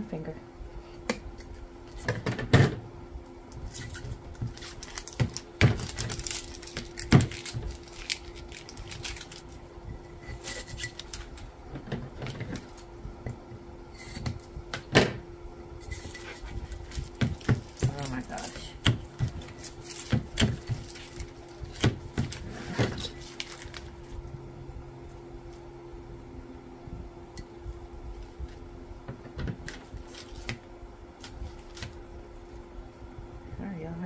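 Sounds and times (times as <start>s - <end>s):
steady low hum: 0.0s - 34.0s
plastic shrink wrap crackling: 3.6s - 9.7s, 10.3s - 11.5s, 15.9s - 24.3s.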